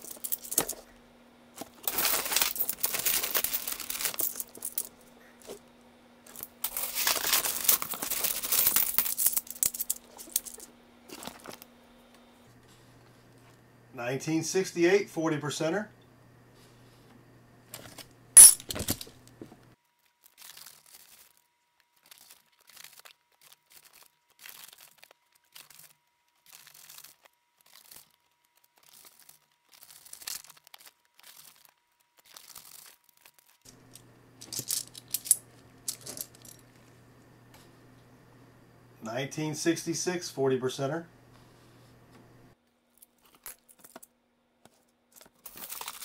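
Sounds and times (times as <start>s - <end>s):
coins clinking: 0.0s - 0.8s, 1.8s - 4.9s, 6.3s - 10.6s, 18.4s - 19.1s, 33.7s - 36.6s.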